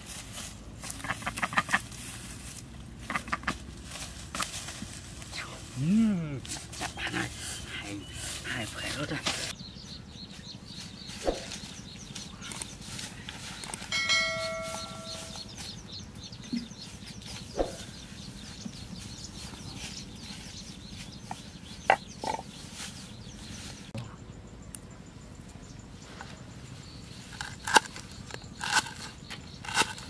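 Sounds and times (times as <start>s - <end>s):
baskets and pot knocking on straw: 0.0s - 7.3s, 11.1s - 15.8s
faint high chirping: 9.5s - 30.0s.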